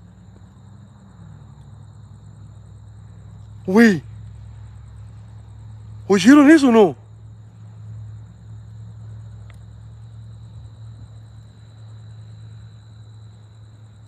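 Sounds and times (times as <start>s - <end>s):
crickets trilling: 0.0s - 14.0s
low steady hum: 0.0s - 14.0s
faint tick: 9.4s - 9.6s.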